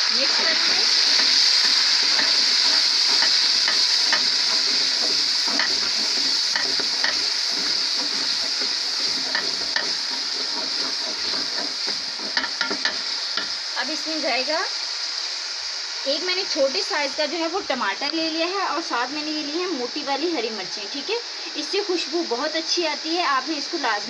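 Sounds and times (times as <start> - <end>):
food sizzling in hot oil: 0.0 - 24.0
wooden spoon scraping pot: 0.4 - 13.6.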